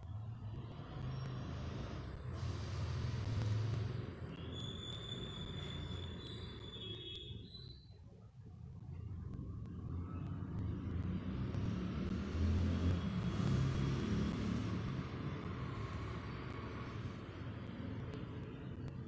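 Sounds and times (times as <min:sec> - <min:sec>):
passing vehicle rumble: 0:00.0 - 0:06.6, 0:08.8 - 0:19.0.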